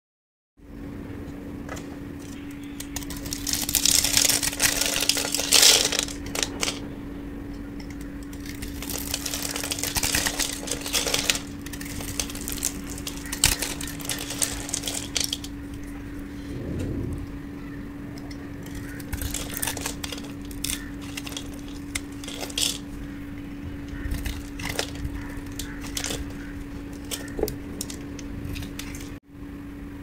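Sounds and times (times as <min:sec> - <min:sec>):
soap cubes crunching: 0:02.8 - 0:06.8, 0:07.9 - 0:16.0, 0:18.6 - 0:22.9, 0:23.9 - 0:29.2.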